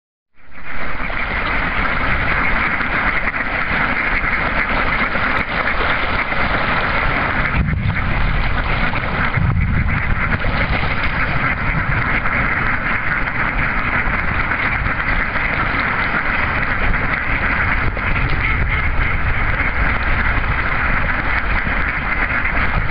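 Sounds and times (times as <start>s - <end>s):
ducks quacking: 0.5s - 22.9s
water splashing: 0.6s - 22.9s
low rumble: 6.4s - 21.4s.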